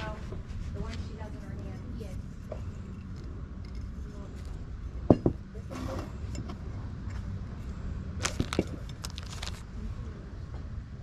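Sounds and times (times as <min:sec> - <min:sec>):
low outdoor rumble: 0:00.0 - 0:11.0
glass and ceramic clinking on table: 0:05.0 - 0:06.5.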